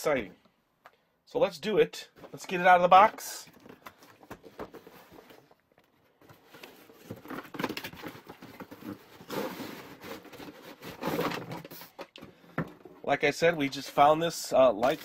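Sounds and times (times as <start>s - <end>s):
cardboard rustling and scraping: 2.2s - 12.1s.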